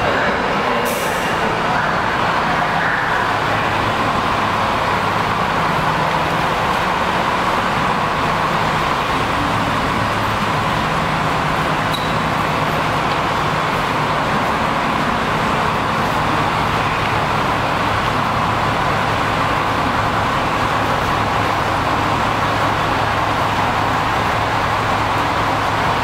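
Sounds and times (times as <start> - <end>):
bus engine hum: 0.0 - 26.0
road noise: 0.0 - 26.0.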